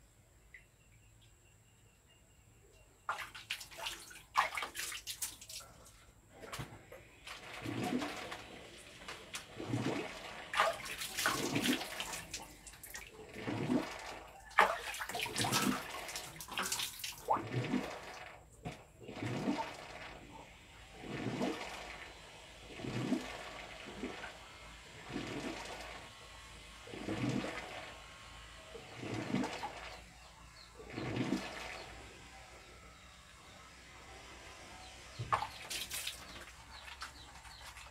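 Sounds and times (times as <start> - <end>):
water splashing and pouring: 3.1 - 26.1, 26.9 - 28.0, 28.8 - 30.0, 30.8 - 32.0, 35.2 - 37.9.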